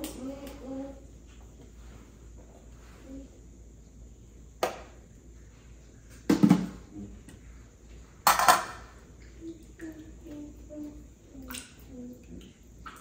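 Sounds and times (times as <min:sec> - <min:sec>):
pots and utensils clattering: 0:08.2 - 0:08.8.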